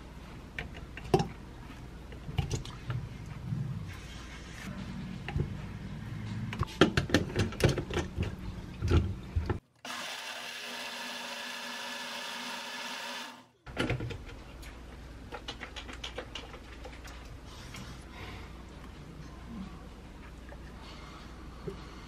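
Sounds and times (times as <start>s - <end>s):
blender running: 9.8s - 13.5s.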